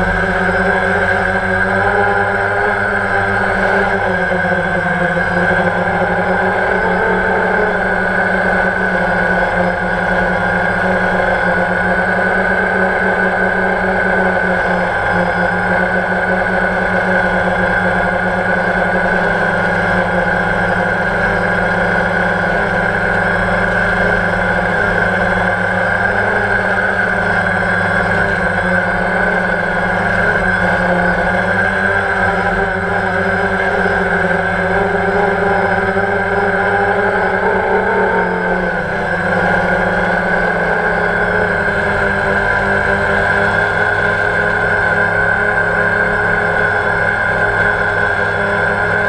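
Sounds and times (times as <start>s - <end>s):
drone motors whining: 0.0s - 49.0s.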